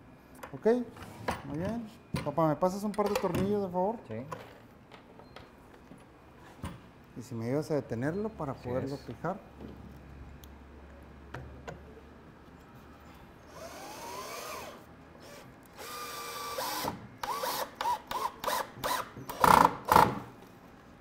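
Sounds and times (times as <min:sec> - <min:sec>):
power drill driving screws: 0:13.5 - 0:20.2.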